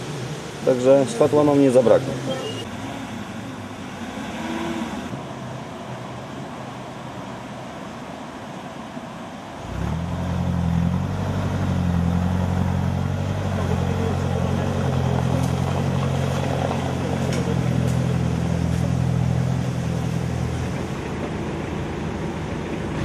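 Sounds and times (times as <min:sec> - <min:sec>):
vehicle engine running steadily: 0:09.6 - 0:23.0.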